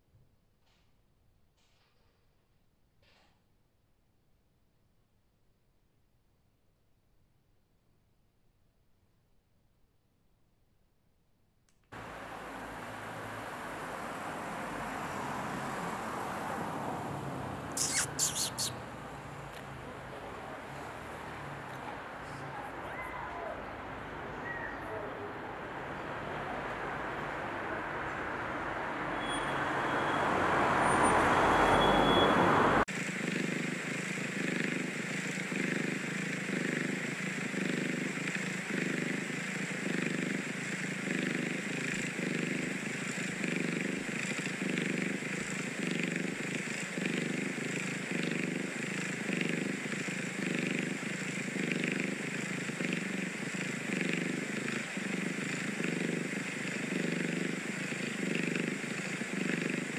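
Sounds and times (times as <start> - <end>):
street noise: 12.0 - 59.9
kitten purring: 13.6 - 27.3, 35.4 - 59.9.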